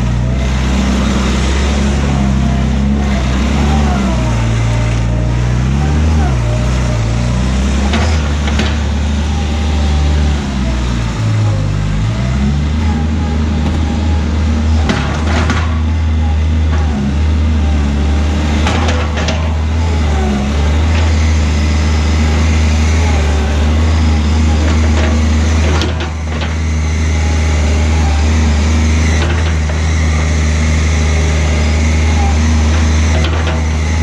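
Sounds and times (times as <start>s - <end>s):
skid steer diesel engine running: 0.0s - 34.0s.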